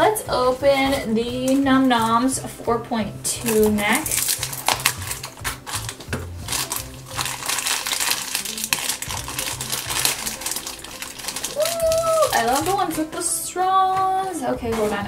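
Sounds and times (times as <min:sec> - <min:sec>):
background music with bass: 0:00.0 - 0:15.0
plastic wrapper crinkling: 0:03.4 - 0:13.2.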